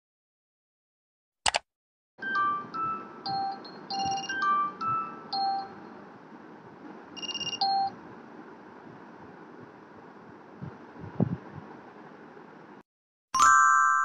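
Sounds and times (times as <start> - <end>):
phone alarm chime melody: 2.2 - 5.9, 7.2 - 8.0, 13.4 - 14.0.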